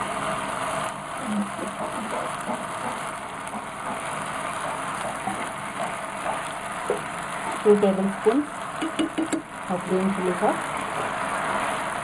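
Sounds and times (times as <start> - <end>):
onions sizzling in oil: 0.0 - 12.0
plastic spoon tapping pan: 8.8 - 9.5.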